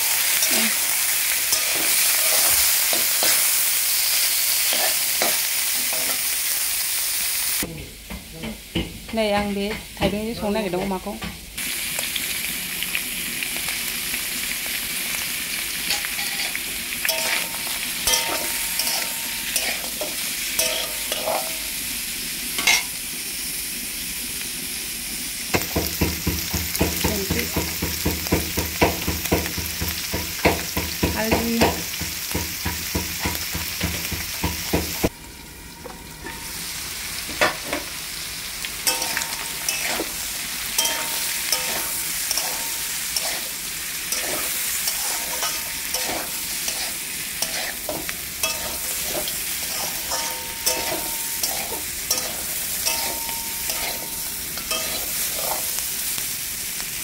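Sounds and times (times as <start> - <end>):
metal spatula scraping a pan: 0.0 - 3.6, 4.5 - 6.3, 15.9 - 21.7, 38.8 - 55.8
meat and onions sizzling in a wok: 0.0 - 57.0.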